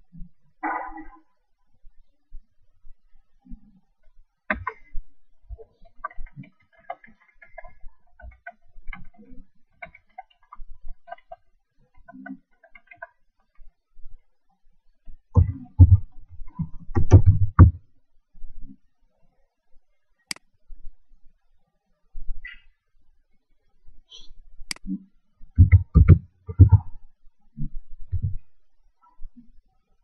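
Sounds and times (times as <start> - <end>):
laptop keyboard typing: 25.6 - 26.9.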